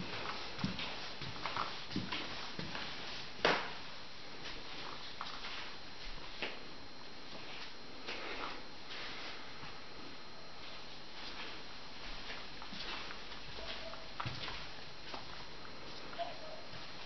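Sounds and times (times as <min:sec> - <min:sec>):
room hiss: 0:00.0 - 0:17.0.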